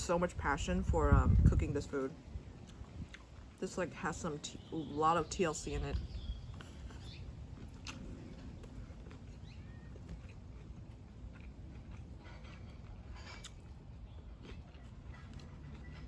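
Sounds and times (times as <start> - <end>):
quiet chewing: 2.6 - 16.0.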